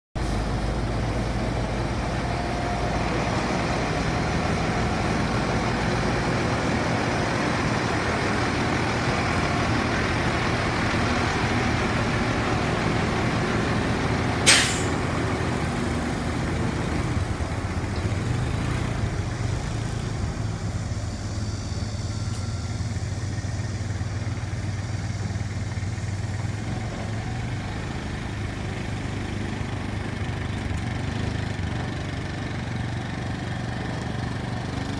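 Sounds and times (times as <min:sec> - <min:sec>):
diesel engine idling: 0:00.2 - 0:34.9
short sharp noise burst: 0:14.4 - 0:15.1.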